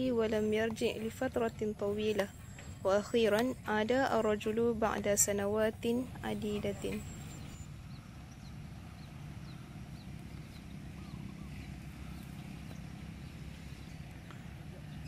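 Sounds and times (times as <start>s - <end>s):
small bird chirping: 4.4s - 15.0s.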